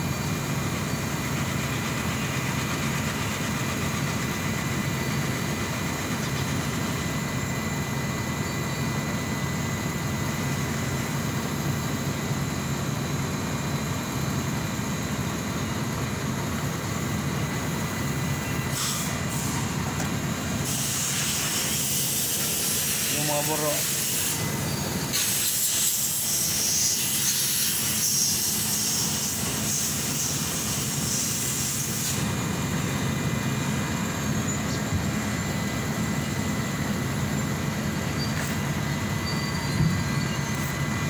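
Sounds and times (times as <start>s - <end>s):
heavy engine idling: 0.0s - 41.0s
hiss: 18.7s - 19.8s, 20.6s - 32.5s.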